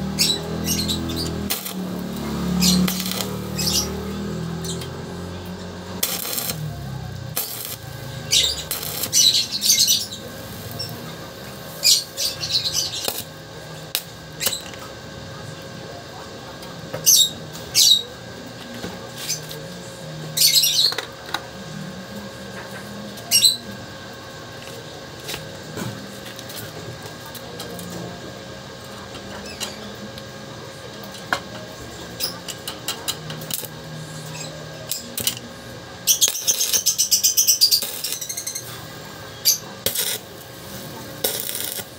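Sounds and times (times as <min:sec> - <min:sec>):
arc welding crackling hiss: 0:00.0 - 0:14.7, 0:36.0 - 0:41.9.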